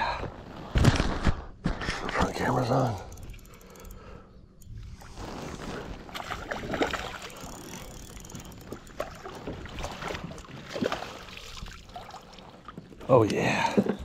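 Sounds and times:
fishing rod and reel rattling: 0:02.1 - 0:11.2.

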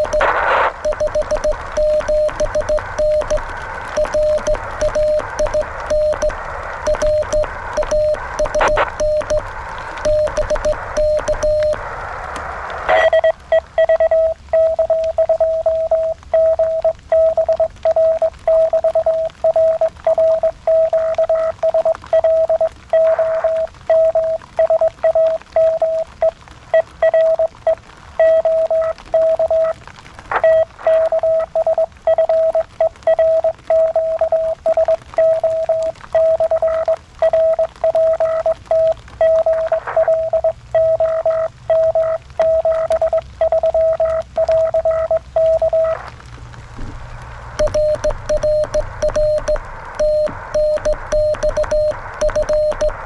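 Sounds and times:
morse code tone: 0:00.0 - 0:09.4, 0:10.0 - 0:11.8, 0:12.9 - 0:27.5, 0:28.2 - 0:29.8, 0:30.4 - 0:46.0, 0:47.6 - 0:53.0.

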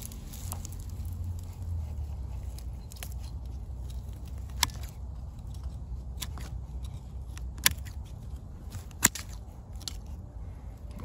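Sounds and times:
pruning shears snipping: 0:02.6 - 0:10.2.

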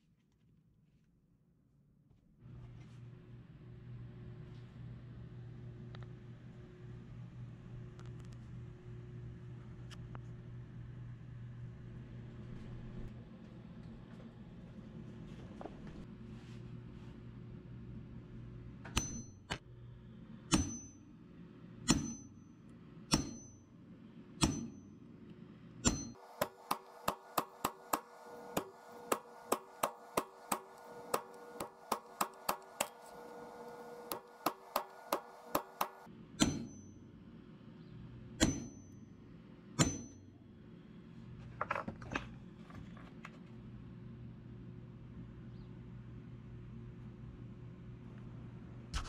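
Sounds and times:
hammer tapping metal punch: 0:18.9 - 0:19.6, 0:20.5 - 0:21.0, 0:21.8 - 0:22.5, 0:23.1 - 0:23.7, 0:24.4 - 0:25.0, 0:25.8 - 0:37.1, 0:38.4 - 0:39.0, 0:39.8 - 0:40.3.

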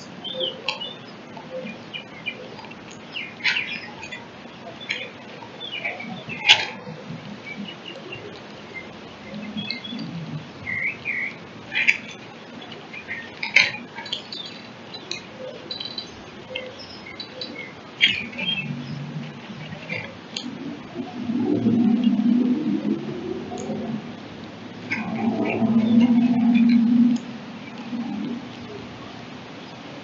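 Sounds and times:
songbirds chirping: 0:00.0 - 0:30.0.

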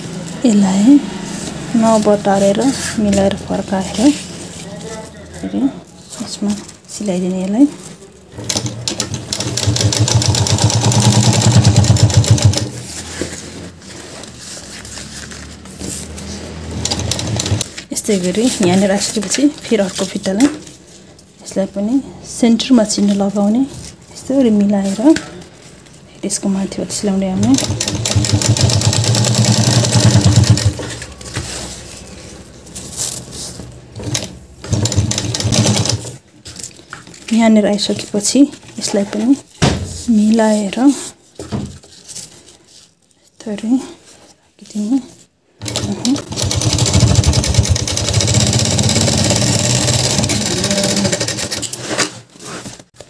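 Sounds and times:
sewing machine stitching: 0:07.8 - 0:13.0, 0:15.4 - 0:20.1, 0:26.9 - 0:36.2, 0:45.6 - 0:52.2.

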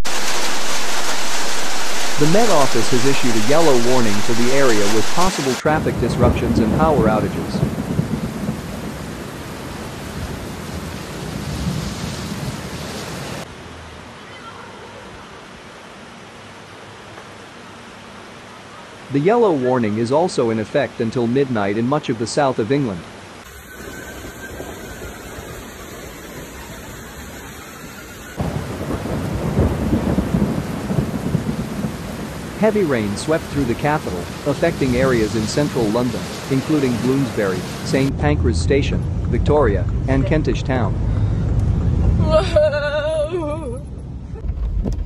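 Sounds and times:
hiss of water: 0:00.0 - 0:05.7, 0:23.4 - 0:28.4, 0:32.6 - 0:38.1
heavy rain: 0:00.0 - 0:21.0, 0:22.7 - 0:42.8
floodwater rushing: 0:00.0 - 0:38.2
low rumbling: 0:28.4 - 0:43.0.

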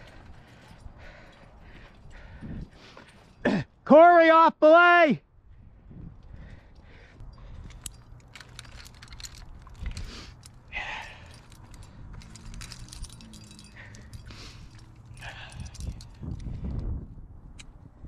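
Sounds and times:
climbing hardware clinking: 0:06.4 - 0:16.8.

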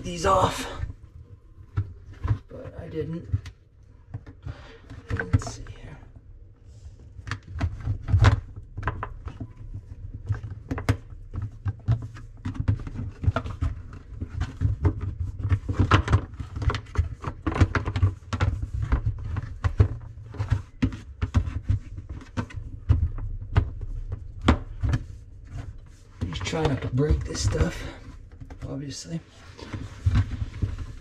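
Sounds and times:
plastic parts clicking and knocking: 0:07.0 - 0:28.8.

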